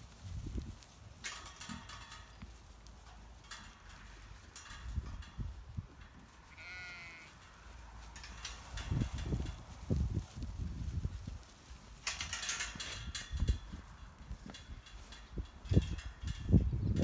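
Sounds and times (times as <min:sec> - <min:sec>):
sheep shuffling and rustling: 0:00.0 - 0:17.0
lamb bleating: 0:06.5 - 0:07.4.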